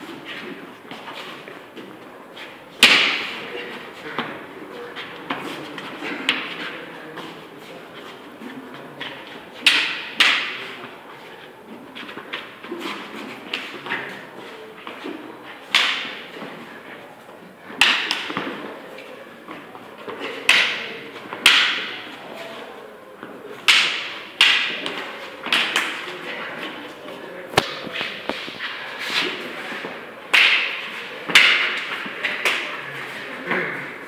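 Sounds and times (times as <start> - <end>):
sticks and knives clacking: 9.0 - 10.6, 15.7 - 16.3, 23.7 - 26.8, 27.6 - 32.8.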